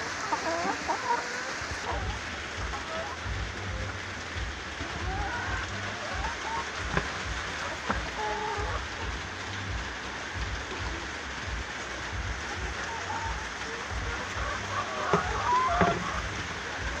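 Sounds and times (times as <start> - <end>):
rain on a metal roof: 0.0 - 17.0
low rumble: 1.7 - 17.0.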